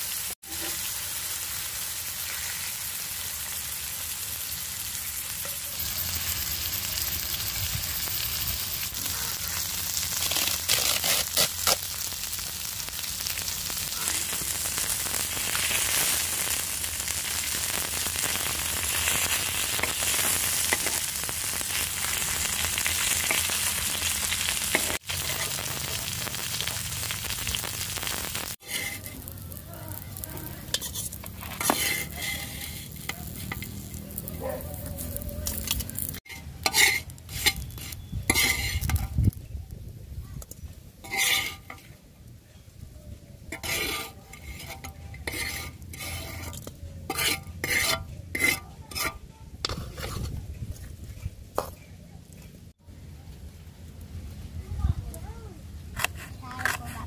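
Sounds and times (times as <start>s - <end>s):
fish sizzling in hot oil: 0.0s - 39.4s, 41.0s - 41.9s, 43.5s - 48.0s
metal spatula scraping a pan: 5.4s - 11.9s, 28.6s - 34.0s, 35.2s - 39.2s, 41.0s - 42.0s, 43.5s - 50.8s, 56.0s - 57.0s.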